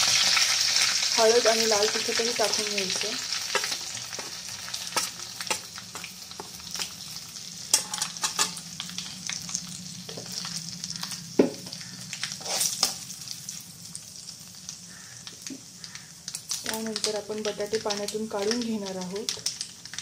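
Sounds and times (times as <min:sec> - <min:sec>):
spices sizzling in hot oil: 0:00.0 - 0:20.0.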